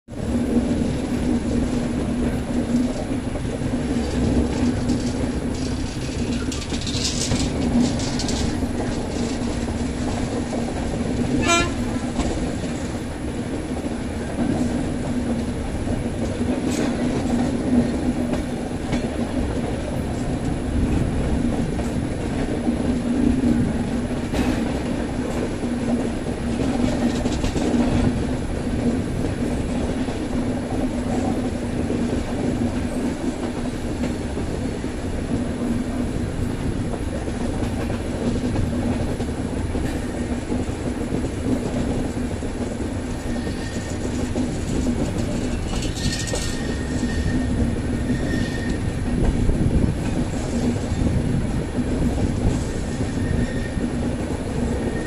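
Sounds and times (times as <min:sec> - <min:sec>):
train wheels rumbling on rails: 0:00.1 - 0:55.0
clacks over rail joints: 0:00.4 - 0:55.0.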